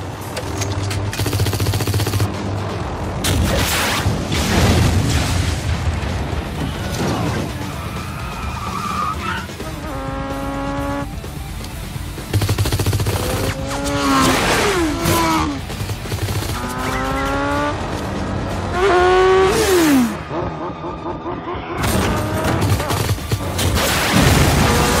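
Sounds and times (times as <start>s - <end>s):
background music: 0.0s - 25.0s
explosion: 3.3s - 7.5s, 23.6s - 25.0s.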